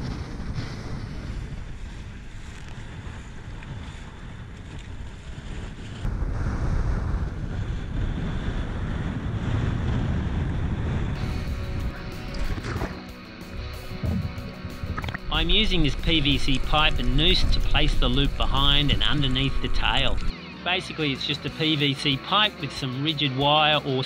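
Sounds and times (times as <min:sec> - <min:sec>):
choppy sea water splashing: 0:00.0 - 0:06.2, 0:11.2 - 0:13.1, 0:13.8 - 0:20.3
wind buffeting microphone: 0:00.0 - 0:20.3.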